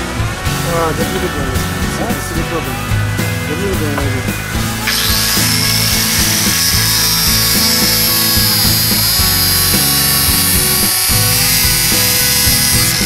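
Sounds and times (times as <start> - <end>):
background music: 0.0 - 13.0
angle grinder whine: 1.2 - 13.0.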